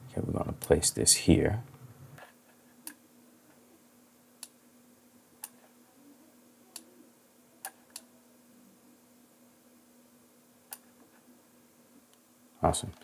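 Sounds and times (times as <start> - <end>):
faint steady hum: 0.0 - 13.0
computer mouse clicking: 10.7 - 10.9.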